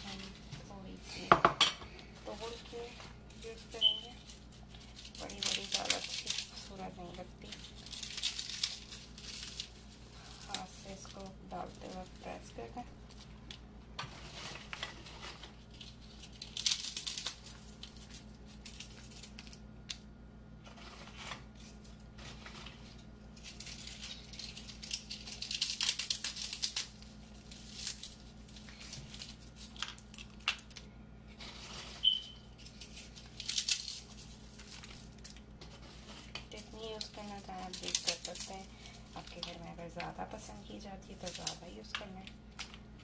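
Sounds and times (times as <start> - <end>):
low steady hum: 0.0 - 43.0
crisp wafers crackling: 2.0 - 43.0.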